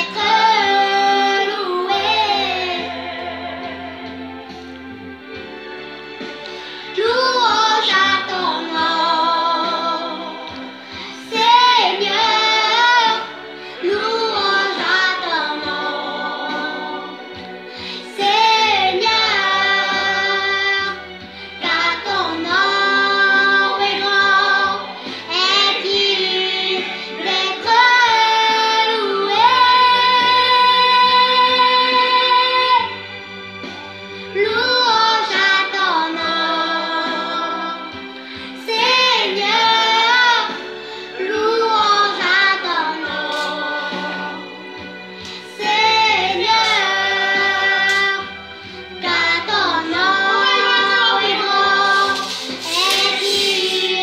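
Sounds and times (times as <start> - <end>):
girl singing: 49.0 - 54.0.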